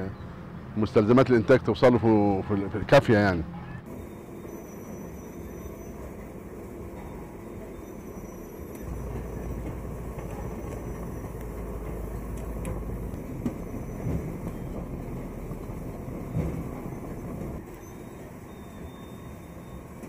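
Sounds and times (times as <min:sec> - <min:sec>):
clay processing machine running: 0:03.9 - 0:20.0
deep motor hum: 0:03.9 - 0:20.0.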